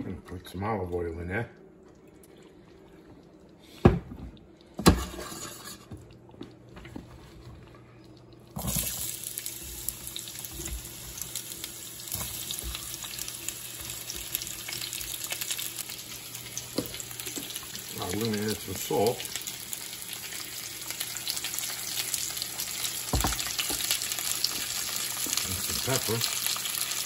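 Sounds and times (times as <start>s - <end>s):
zucchini sizzling in oil: 8.6s - 27.0s.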